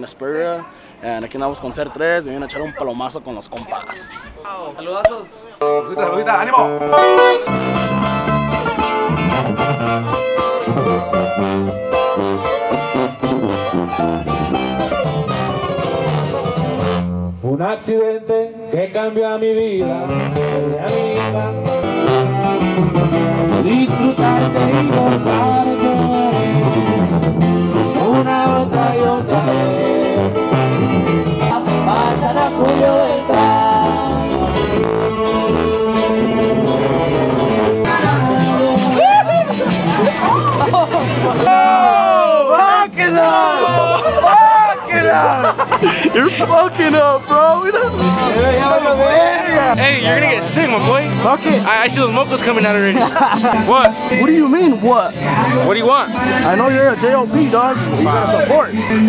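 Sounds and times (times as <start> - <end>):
electric bass: 5.6 - 17.7, 19.6 - 42.5, 43.4 - 59.0
tuba low notes: 5.6 - 17.8, 19.6 - 41.5, 45.1 - 54.2
acoustic guitars strumming: 5.6 - 59.0
person singing long notes: 17.4 - 40.5.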